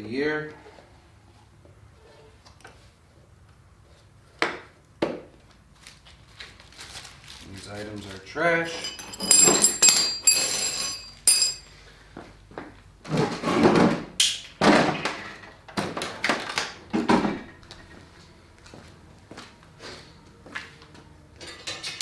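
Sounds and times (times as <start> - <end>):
plastic packaging crinkling: 5.7 - 8.3.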